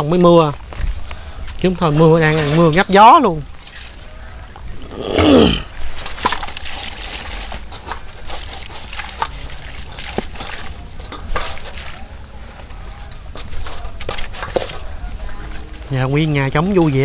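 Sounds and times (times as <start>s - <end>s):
water sloshing: 0.9s - 17.0s.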